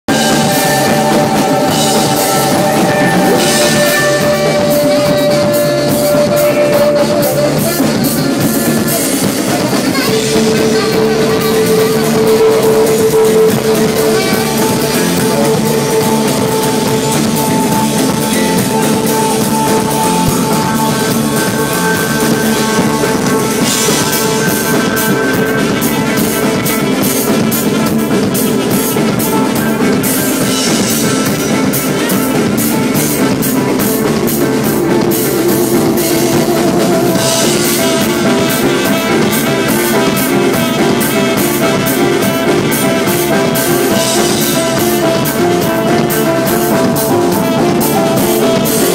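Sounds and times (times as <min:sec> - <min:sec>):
live band playing: 0:00.0 - 0:48.9.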